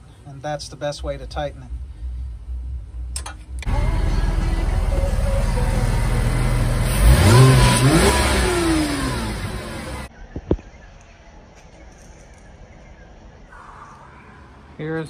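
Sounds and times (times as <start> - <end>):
car engine revving: 3.6 - 10.1.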